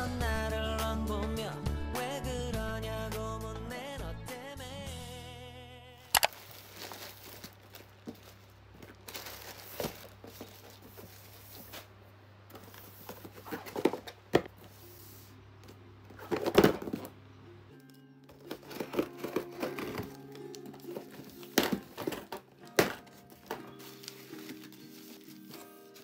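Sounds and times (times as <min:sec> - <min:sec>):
plastic bags rustling: 0:06.1 - 0:15.3, 0:16.1 - 0:26.0.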